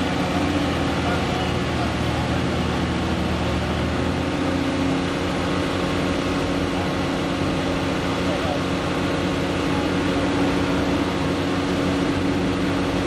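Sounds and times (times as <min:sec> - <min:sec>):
truck engine running: 0:00.0 - 0:13.0.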